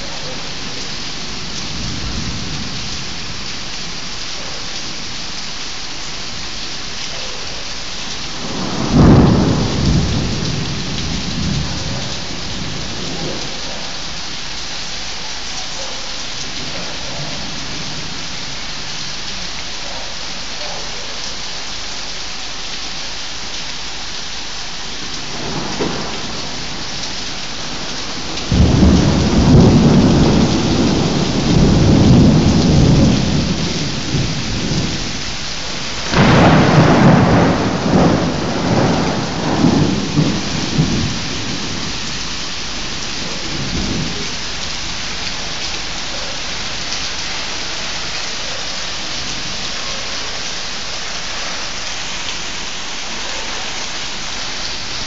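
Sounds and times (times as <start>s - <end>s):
thunder rumbling: 0.0s - 4.0s, 8.2s - 14.2s, 25.0s - 48.0s
heavy rain falling: 0.0s - 55.0s.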